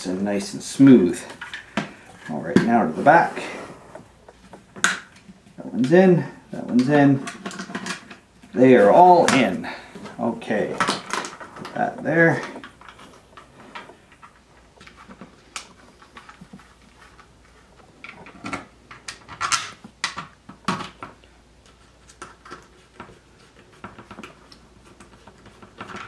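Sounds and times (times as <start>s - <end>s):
plastic parts clicking and tapping: 6.6s - 17.3s, 18.0s - 26.0s
plastic parts knocking: 6.6s - 21.3s.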